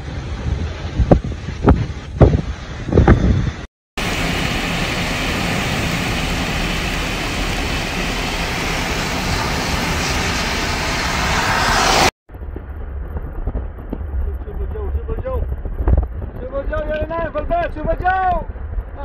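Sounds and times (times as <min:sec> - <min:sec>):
car driving in rainstorm: 0:04.0 - 0:12.1.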